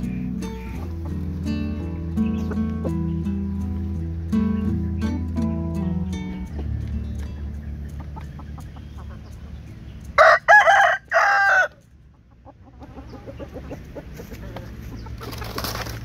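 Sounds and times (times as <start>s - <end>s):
chickens clucking faintly: 0.0s - 5.4s, 6.1s - 16.0s
rooster crowing: 10.2s - 11.8s.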